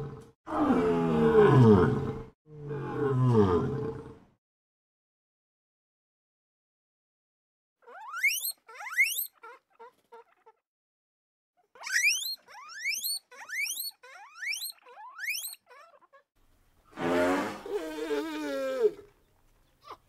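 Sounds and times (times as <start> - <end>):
guinea pig soft squeaks: 7.8 - 10.6, 11.8 - 16.3
guinea pig wheeking: 7.8 - 10.6, 11.7 - 16.3.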